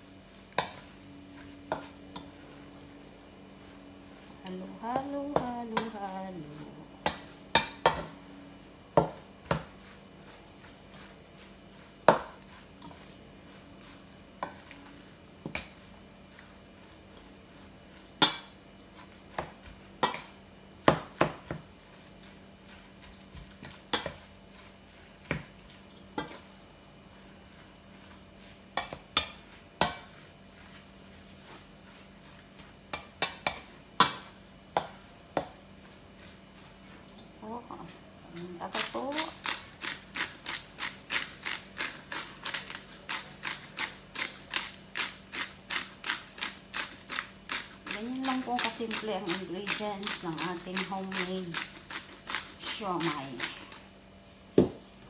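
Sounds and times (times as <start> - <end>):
utensil clinking in metal bowl: 38.6 - 53.8.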